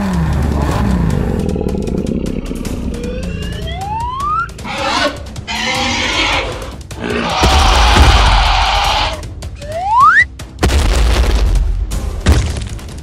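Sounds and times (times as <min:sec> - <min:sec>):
background music: 0:00.0 - 0:13.0
cartoon dinosaur roar: 0:00.4 - 0:03.4, 0:04.6 - 0:09.2.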